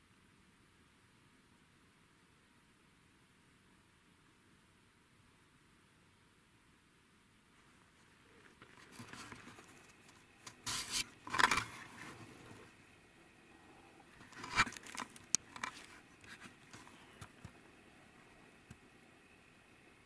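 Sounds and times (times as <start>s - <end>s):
camera handling scrapes and rustles: 8.5s - 12.7s, 14.2s - 17.4s.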